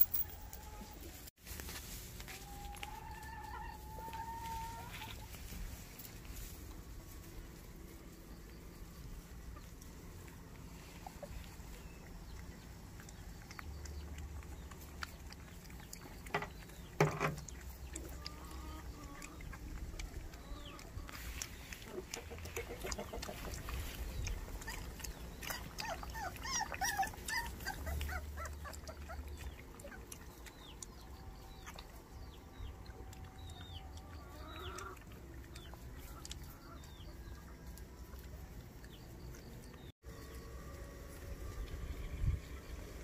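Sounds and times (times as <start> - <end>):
puppies whimpering and yipping: 2.4 - 5.4, 17.6 - 39.9.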